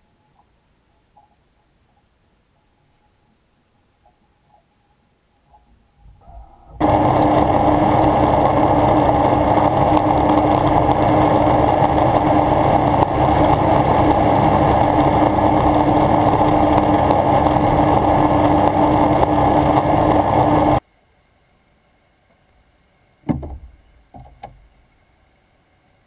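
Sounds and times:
watercraft engine drone and whine: 6.4s - 20.8s.

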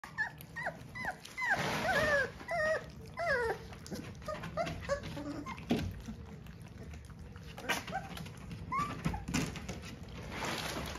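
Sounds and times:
puppies whining: 0.0s - 10.2s.

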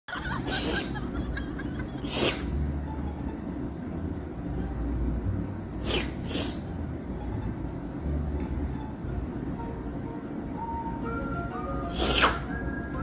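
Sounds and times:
steady low rumble: 0.1s - 11.9s
short hissing bursts: 0.5s - 1.0s, 2.0s - 2.6s, 5.7s - 6.8s, 11.9s - 12.5s.

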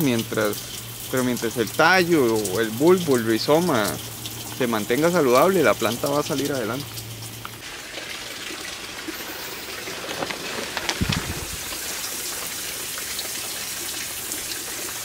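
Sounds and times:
patter of falling water: 0.0s - 15.0s
drops ticking on plastic and leaves: 8.7s - 15.0s.

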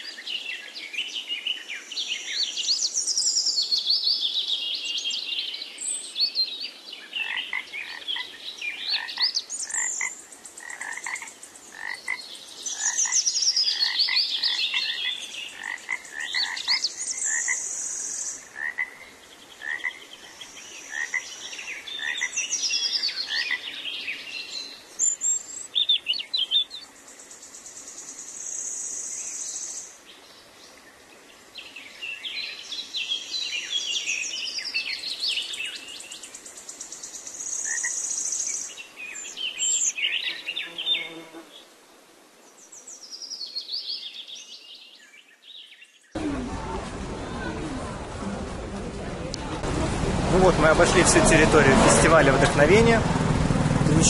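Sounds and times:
birds singing: 0.0s - 41.7s
frogs croaking: 7.1s - 23.9s, 34.8s - 38.7s.

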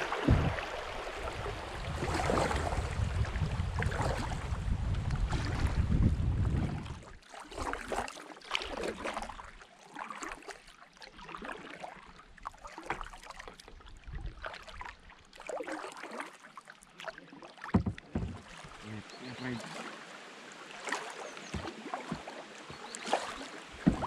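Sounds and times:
wind buffeting microphone: 0.0s - 7.1s
kayak paddles splashing: 0.0s - 24.0s
water dripping and lapping: 0.0s - 24.0s
loud thump: 0.2s - 0.6s.

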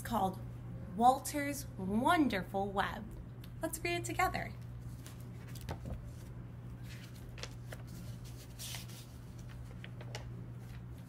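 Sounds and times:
steady low hum: 0.0s - 11.0s
book pages turning: 4.8s - 11.0s.

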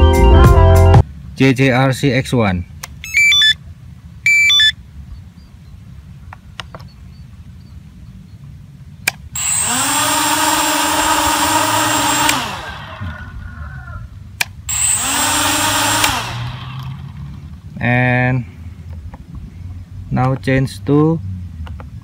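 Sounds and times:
short electronic beep: 3.0s - 3.6s, 4.3s - 4.8s
quadcopter motors whining: 9.3s - 14.1s, 14.7s - 17.6s.

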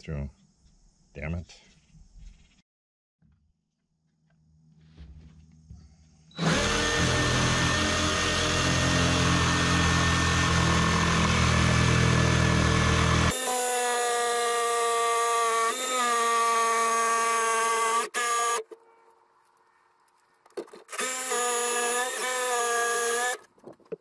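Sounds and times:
jigsaw cutting through wood: 6.4s - 18.6s, 20.9s - 23.4s.

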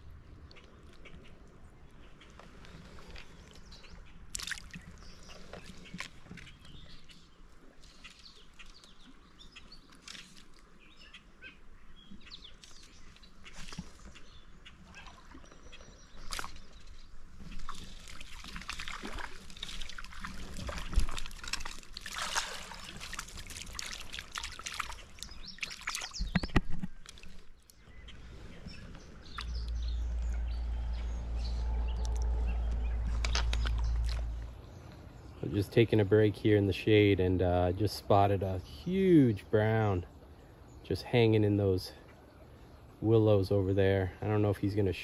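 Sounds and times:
creek water trickling: 0.0s - 45.0s
small clicks and splashes: 2.2s - 7.2s, 7.8s - 10.8s, 12.2s - 27.8s, 29.2s - 30.5s, 32.0s - 34.6s.

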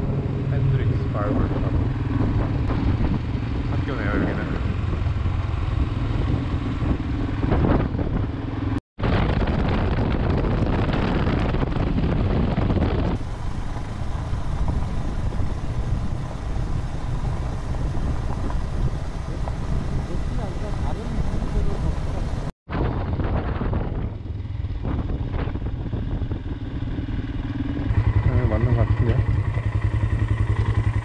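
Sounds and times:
motorcycle engine running: 0.0s - 31.0s
road and wind noise: 0.0s - 31.0s.

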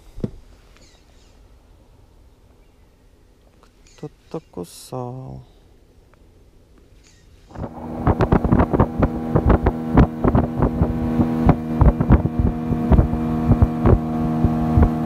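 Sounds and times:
boat motor running: 7.5s - 15.0s.

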